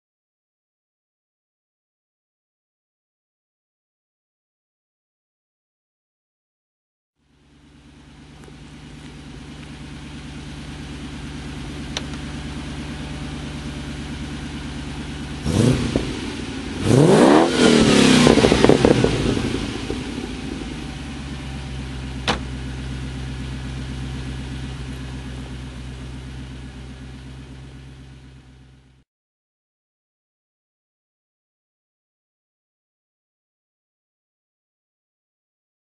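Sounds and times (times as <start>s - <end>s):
car engine idling and revving: 7.2s - 29.0s.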